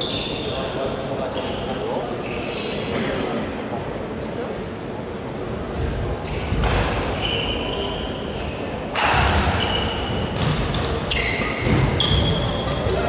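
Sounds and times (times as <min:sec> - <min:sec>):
sports shoes squeaking on court: 0:00.0 - 0:02.8, 0:06.2 - 0:08.8, 0:09.5 - 0:12.9
rackets hitting shuttlecock: 0:08.9 - 0:09.6, 0:10.4 - 0:13.0.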